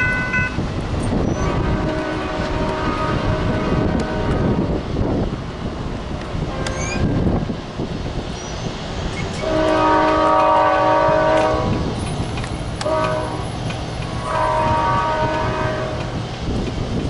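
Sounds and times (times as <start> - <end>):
low rumble of train: 0.0 - 17.0
train horn blasts: 1.3 - 4.7, 6.5 - 7.1, 9.4 - 11.9, 12.8 - 16.2.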